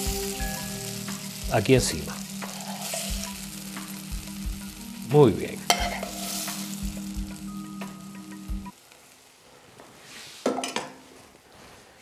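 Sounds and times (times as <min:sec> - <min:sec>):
hot pan sizzling: 0:00.0 - 0:09.6.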